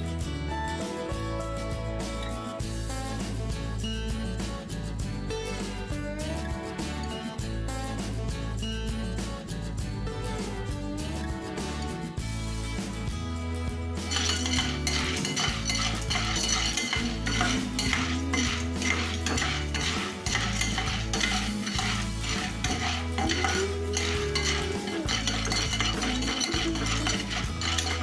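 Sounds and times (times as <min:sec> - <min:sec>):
spatula scraping frying pan: 0:14.1 - 0:28.0.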